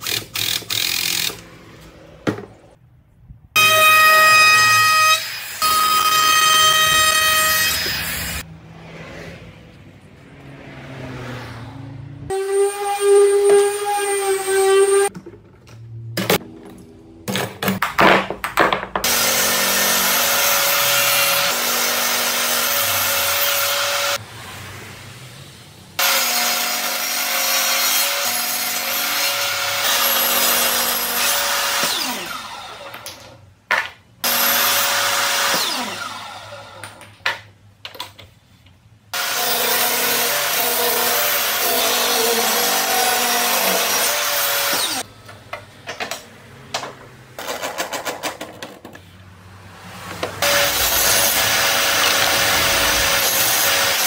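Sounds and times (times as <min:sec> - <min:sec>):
table saw ripping wood: 0:19.0 - 0:24.2, 0:26.0 - 0:33.4, 0:34.2 - 0:37.2, 0:39.2 - 0:45.1, 0:50.1 - 0:54.0.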